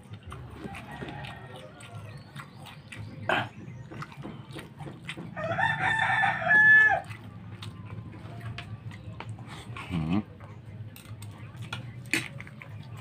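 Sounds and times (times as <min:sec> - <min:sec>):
eating by hand: 0:00.0 - 0:13.0
rooster crowing: 0:00.7 - 0:02.0, 0:05.4 - 0:07.1.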